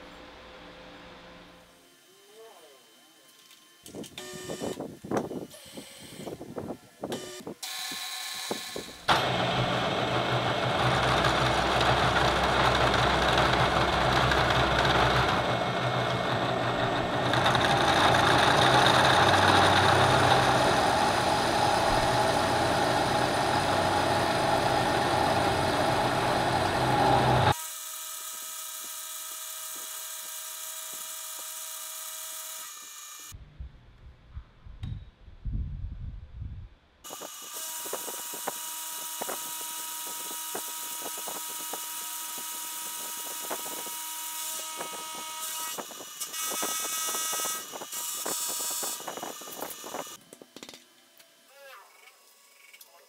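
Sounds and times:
spindle motor hum: 7.1s - 27.6s
end mill cutting steel: 9.1s - 27.6s
low bumps: 10.1s - 27.5s.

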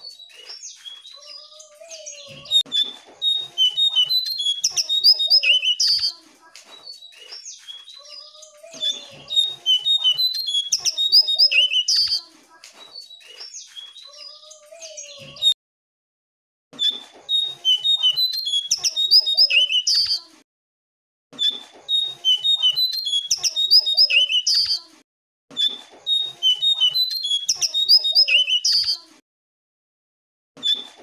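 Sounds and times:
bird whistling song: 0.0s - 6.2s, 8.8s - 12.3s, 12.9s - 15.6s, 17.3s - 20.2s, 21.9s - 24.9s, 25.6s - 29.1s.

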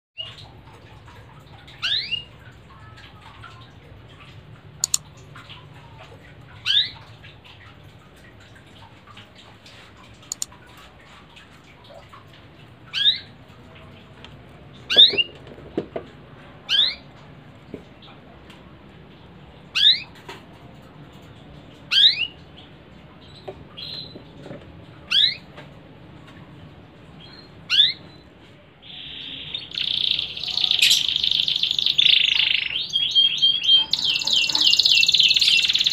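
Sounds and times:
sharp clicks: 4.8s - 5.1s, 10.3s - 10.5s
canary call notes: 19.7s - 20.1s, 28.8s - 35.9s.

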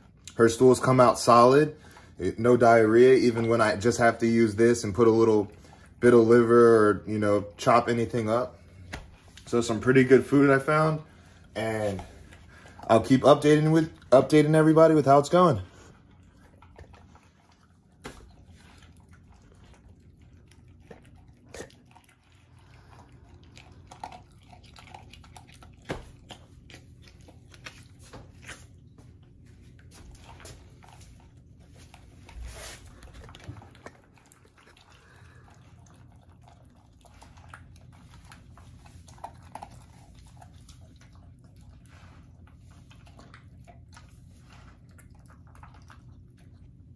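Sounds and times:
dog chewing dry kibble: 11.4s - 46.9s.

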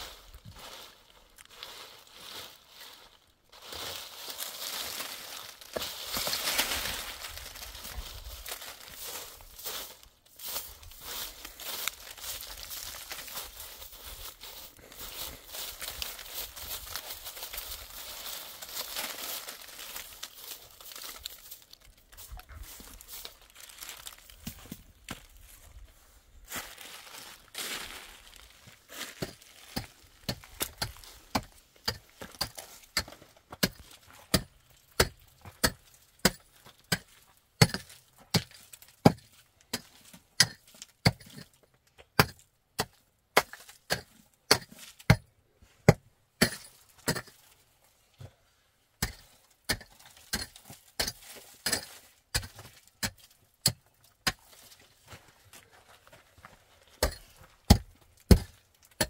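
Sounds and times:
hand tool striking gravel floor: 27.6s - 47.4s, 49.0s - 54.8s, 57.0s - 59.0s.

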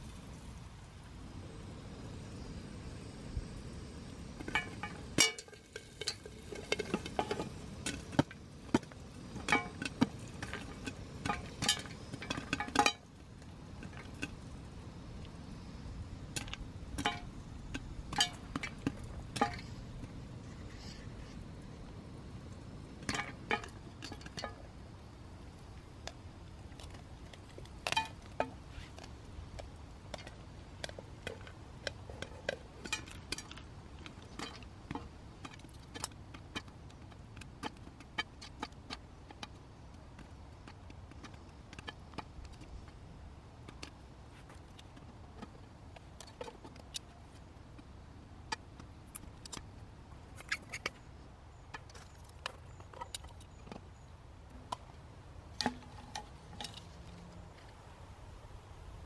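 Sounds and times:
gas stove rumble: 0.0s - 25.7s
popcorn popping: 3.8s - 20.2s, 22.9s - 43.0s, 55.5s - 56.9s.

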